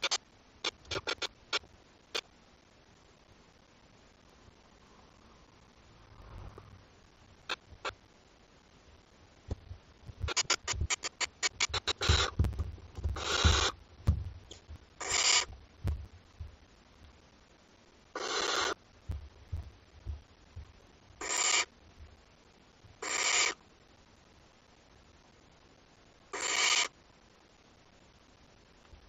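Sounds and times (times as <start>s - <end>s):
owl chicks hissing calls: 0.0s - 2.3s, 10.2s - 12.4s, 13.0s - 13.8s, 14.5s - 15.6s, 18.1s - 18.8s, 21.2s - 21.7s, 23.0s - 23.6s, 26.3s - 27.0s.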